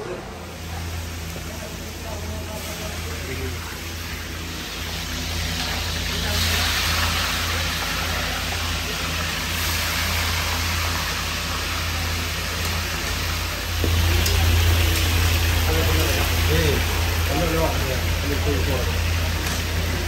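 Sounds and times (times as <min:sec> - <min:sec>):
fish sizzling in oil: 0:00.3 - 0:20.0
low hum: 0:12.6 - 0:20.0.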